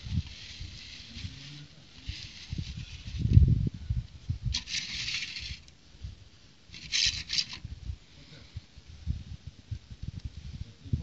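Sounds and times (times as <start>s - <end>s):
plastic scraping and rattling: 4.5s - 5.7s, 6.7s - 7.6s.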